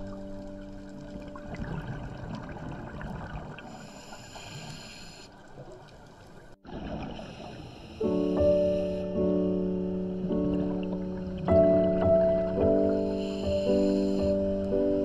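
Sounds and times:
underwater rushing hiss: 0:07.0 - 0:09.1, 0:12.8 - 0:14.4.

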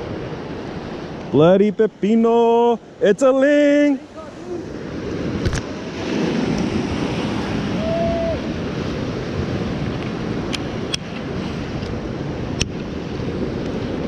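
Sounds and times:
ocean surf: 0:00.0 - 0:14.0.

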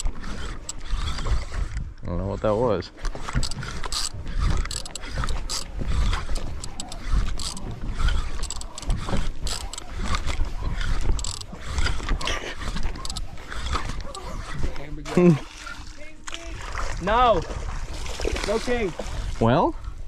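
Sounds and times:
fishing reel clicking: 0:00.0 - 0:01.9, 0:03.0 - 0:14.8.

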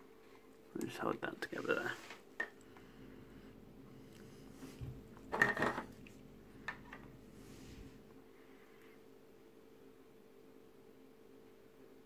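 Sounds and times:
faint steady hum: 0:00.0 - 0:12.0
plastic parts clattering: 0:05.3 - 0:05.9.

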